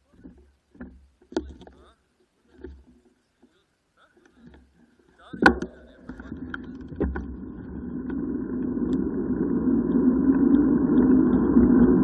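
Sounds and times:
bicycle tyre noise on asphalt: 0:07.3 - 0:12.0.

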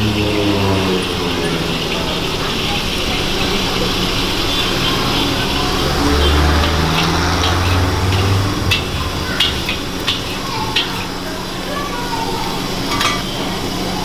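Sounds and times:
low rumble: 0:00.0 - 0:11.4
metal spatula clinking on wok: 0:06.5 - 0:11.2, 0:12.8 - 0:13.4.

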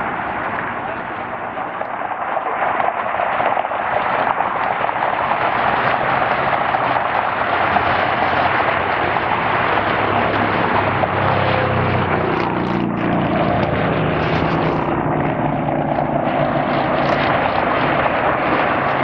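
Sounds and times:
jet engines rushing: 0:00.0 - 0:19.0.

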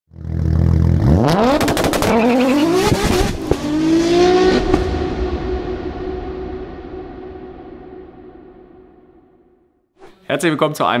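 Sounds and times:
car engine revving: 0:00.1 - 0:08.0
sharp cracks: 0:01.5 - 0:02.3.

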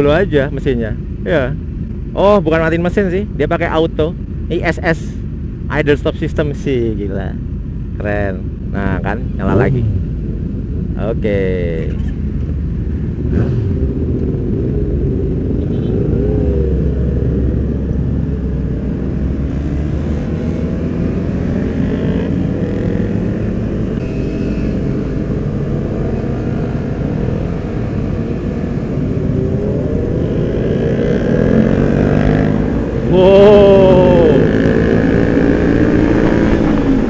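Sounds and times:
road and wind noise: 0:00.0 - 0:37.0
motorcycles accelerating: 0:08.0 - 0:37.0.

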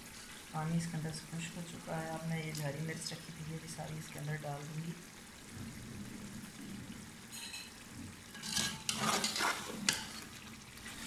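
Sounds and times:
food sizzling in oil: 0:00.0 - 0:11.0
spatula clinking on pot: 0:07.3 - 0:10.2
metal spatula scraping pot: 0:07.3 - 0:11.0.

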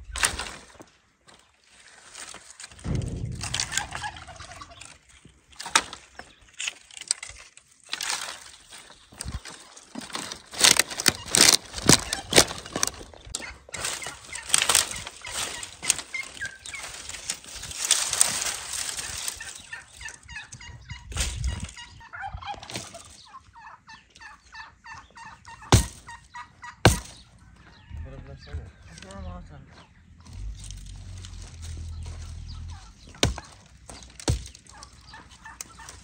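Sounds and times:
brushwood branches snapping: 0:00.1 - 0:00.9, 0:02.1 - 0:20.3, 0:25.7 - 0:26.1, 0:26.9 - 0:27.2, 0:30.3 - 0:36.0
domestic fowl calling: 0:11.1 - 0:36.0
axe striking wood: 0:25.7 - 0:26.0, 0:26.8 - 0:27.2, 0:33.1 - 0:34.6.

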